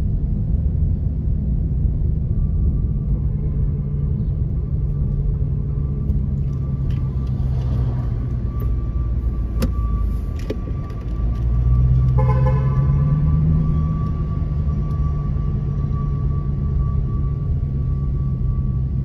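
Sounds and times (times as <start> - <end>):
car engine and road hum: 0.0 - 19.0
car horn: 12.1 - 13.2.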